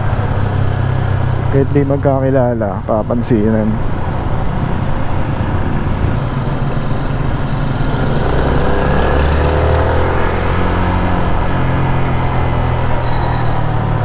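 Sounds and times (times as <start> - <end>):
road noise: 0.0 - 14.0.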